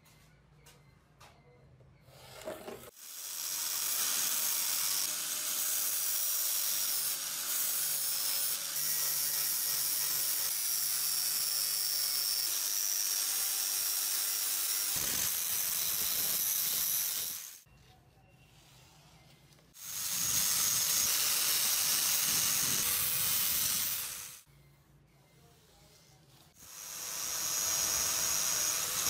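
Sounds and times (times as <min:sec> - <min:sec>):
angle grinder polishing metal: 0:19.8 - 0:24.5, 0:26.6 - 0:29.0.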